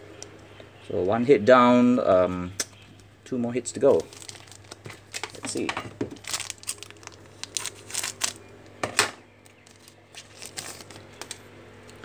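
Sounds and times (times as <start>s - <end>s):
cards rustling: 3.8s - 8.4s, 9.5s - 11.5s
foil pack crinkling and tearing: 3.8s - 8.5s, 9.4s - 11.4s.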